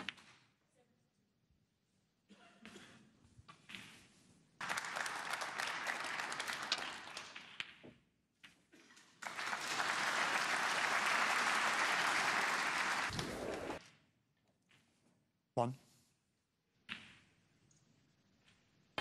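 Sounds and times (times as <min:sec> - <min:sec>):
audience applauding: 0:04.6 - 0:07.4, 0:09.2 - 0:13.8.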